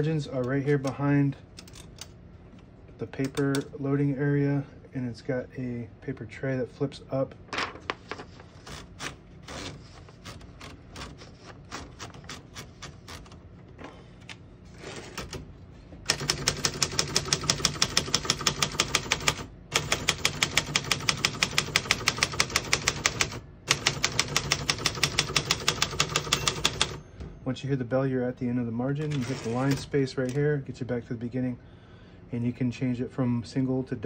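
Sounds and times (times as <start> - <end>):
rapid typewriter typing: 8.6 - 13.4, 16.1 - 27.0, 29.0 - 30.4
typewriter platen clicks: 16.1 - 27.0.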